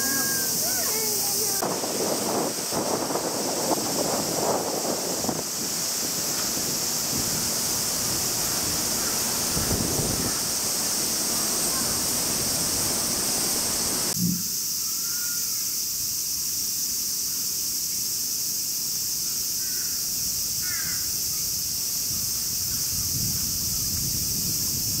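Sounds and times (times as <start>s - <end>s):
high-pitched insect drone: 0.0s - 1.7s, 2.3s - 25.0s
short low thump: 14.2s - 14.6s.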